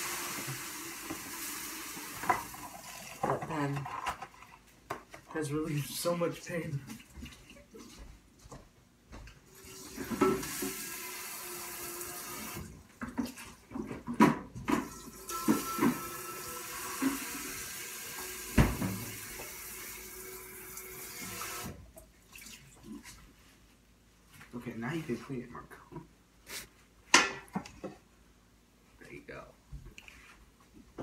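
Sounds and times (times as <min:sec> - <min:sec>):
kitchen tap running: 0:00.0 - 0:03.6, 0:09.5 - 0:13.6, 0:14.7 - 0:22.8
dishes knocking and clattering: 0:09.9 - 0:10.8, 0:13.0 - 0:16.2, 0:18.5 - 0:19.4, 0:27.1 - 0:28.1.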